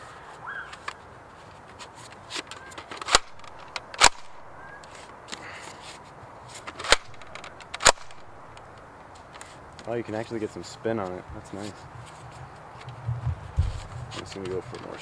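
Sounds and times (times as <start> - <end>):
toy blaster plastic clacks: 2.3 - 4.2, 6.7 - 8.2.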